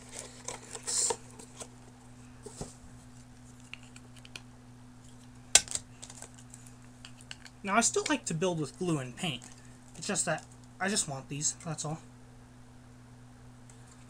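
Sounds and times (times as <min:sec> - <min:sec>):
steady low hum: 0:00.0 - 0:14.0
plastic packaging crinkle: 0:05.1 - 0:07.4, 0:09.2 - 0:10.7.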